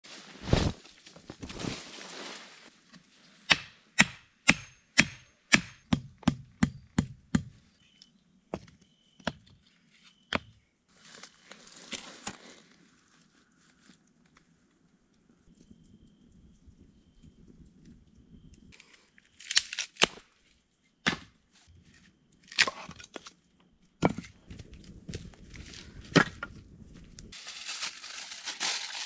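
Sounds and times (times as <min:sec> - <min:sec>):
canvas tarp whooshing: 0:00.0 - 0:00.8
soft rustle: 0:00.0 - 0:02.8.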